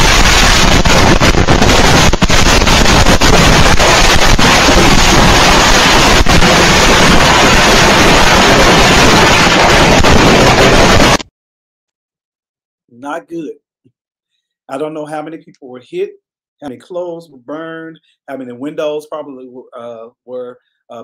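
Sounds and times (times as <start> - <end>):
firework bangs and crackling: 0.0 - 11.2.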